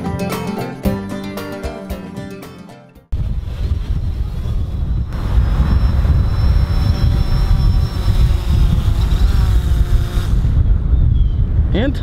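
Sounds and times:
wind rumble on microphone: 3.1s - 12.0s
drone propellers whining: 3.2s - 10.7s.

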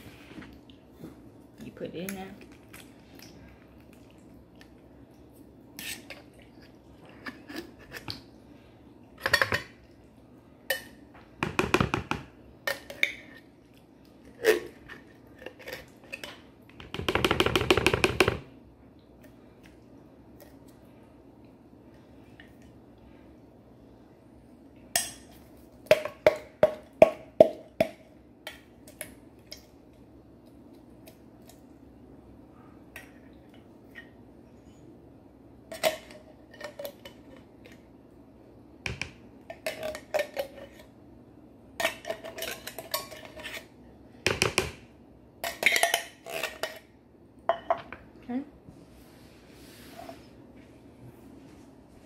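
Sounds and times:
spoon scraping bowl: 5.8s - 8.1s, 41.8s - 43.8s.

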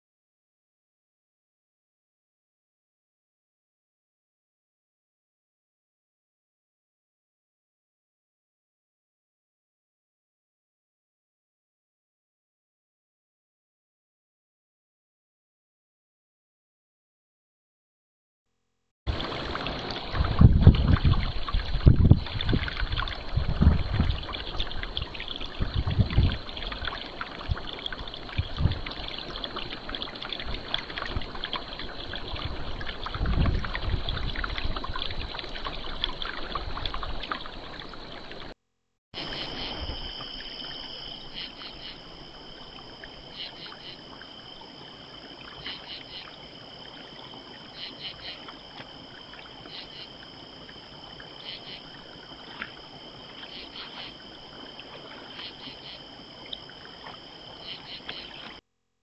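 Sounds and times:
wind buffeting microphone: 19.1s - 29.3s, 30.4s - 37.7s
crickets chirping: 19.2s - 38.5s, 39.2s - 58.6s
faint insect drone: 19.2s - 38.6s, 39.2s - 58.6s
high-pitched insect trills: 39.2s - 58.6s.

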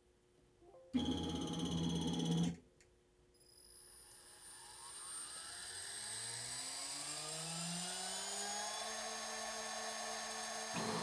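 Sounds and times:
mill spindle whine spinning up: 3.4s - 11.0s.

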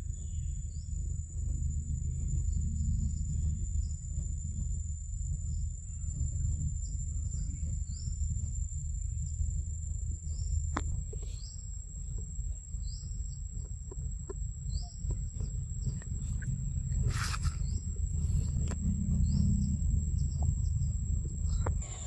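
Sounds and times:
high-pitched insect whine: 0.0s - 22.0s
low microphone rumble: 0.0s - 22.0s
bird chirping: 11.2s - 11.7s, 12.7s - 13.7s, 14.6s - 22.0s.

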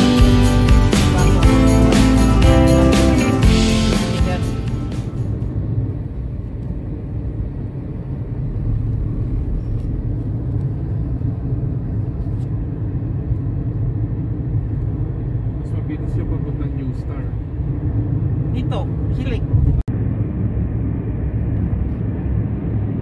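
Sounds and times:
music: 0.0s - 5.4s
car road and engine rumble: 0.0s - 23.0s.

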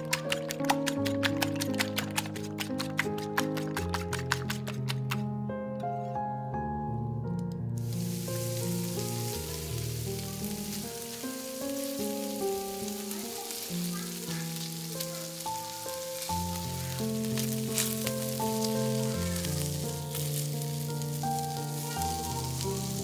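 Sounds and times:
soft background music: 0.0s - 23.0s
sausages sizzling in frying pan: 7.8s - 23.0s.

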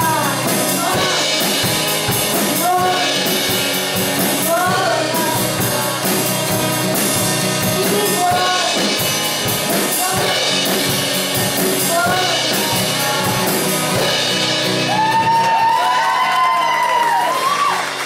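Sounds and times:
people singing: 0.0s - 14.2s
acoustic guitar: 0.0s - 18.0s
drum kit: 0.0s - 18.0s.

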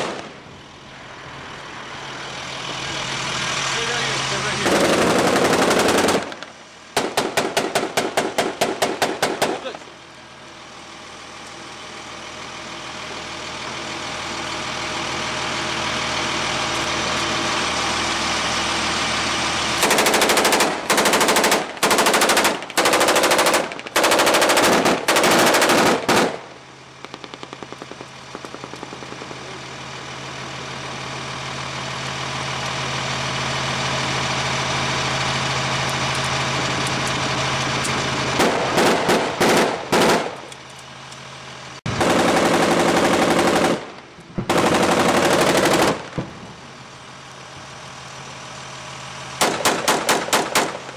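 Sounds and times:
vehicle engine running: 0.0s - 50.9s
machine gun firing bursts: 4.6s - 9.8s, 19.8s - 29.6s, 38.4s - 40.5s, 41.9s - 46.3s, 49.4s - 50.9s.

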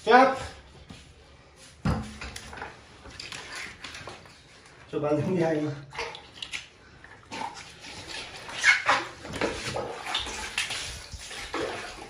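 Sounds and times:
water splashing onto tiled floor: 5.9s - 12.0s.

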